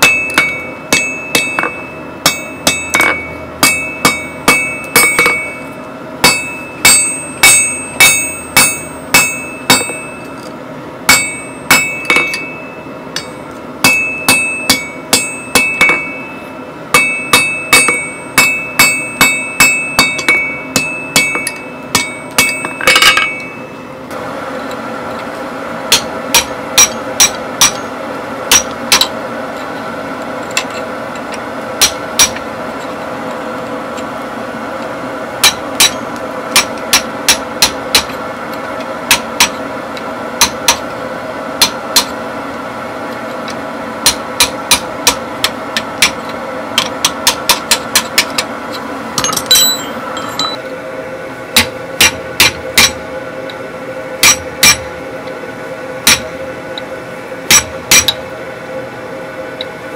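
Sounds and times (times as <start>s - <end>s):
anvil ringing: 0.0s - 10.5s, 11.1s - 23.8s, 25.9s - 27.9s, 28.5s - 29.2s, 31.8s - 32.4s, 35.4s - 38.1s, 49.2s - 50.6s, 54.2s - 54.9s
hammer striking steel on anvil: 0.0s - 10.5s, 11.1s - 23.8s, 25.9s - 29.2s, 30.4s - 33.0s, 35.4s - 38.2s, 39.1s - 39.6s, 40.4s - 40.9s, 41.6s - 42.2s, 44.0s - 50.6s, 51.6s - 53.0s, 54.2s - 54.9s, 56.0s - 56.4s, 57.5s - 58.2s
steady background hum: 0.0s - 59.9s.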